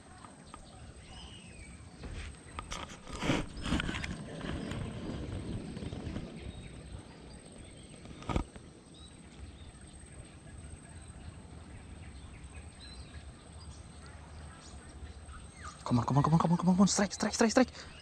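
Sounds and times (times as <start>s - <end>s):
faint bird chirps: 0.0s - 18.0s
low rumble on microphone: 0.5s - 15.8s.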